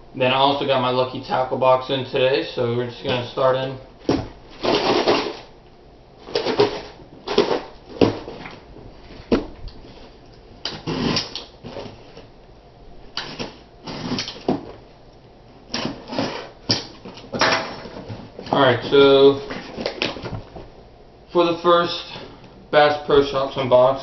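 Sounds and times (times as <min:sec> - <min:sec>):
box cutter slitting tape: 0:04.6 - 0:05.5, 0:10.6 - 0:11.5, 0:13.2 - 0:14.6, 0:15.7 - 0:17.0.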